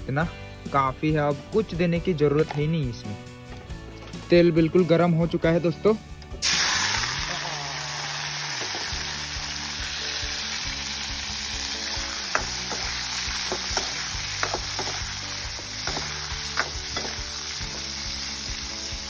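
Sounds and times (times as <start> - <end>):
larvae sizzling in hot oil: 6.4 - 19.0
metal spatula stirring: 12.3 - 17.3
spatula striking pan: 12.3 - 17.4.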